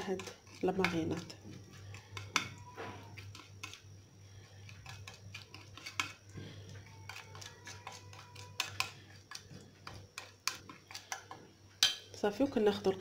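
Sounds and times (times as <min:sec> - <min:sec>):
metal spoon scraping a plate: 0:04.5 - 0:06.2, 0:07.1 - 0:11.4.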